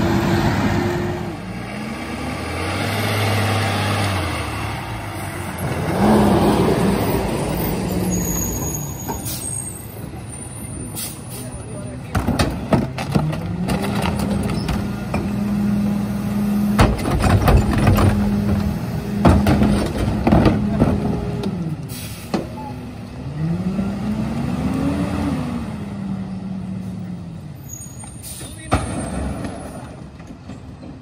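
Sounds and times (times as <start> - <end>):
garbage truck diesel engine revving: 0.0 - 8.2
trash carts banging on hopper: 16.7 - 21.5.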